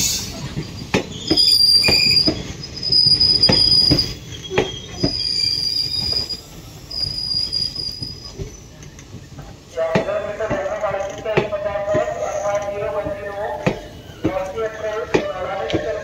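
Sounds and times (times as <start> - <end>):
train wheels squealing: 0.0 - 9.0, 13.3 - 15.0
train low rumble: 0.0 - 16.0
wheels clacking over rail joints: 8.4 - 16.0.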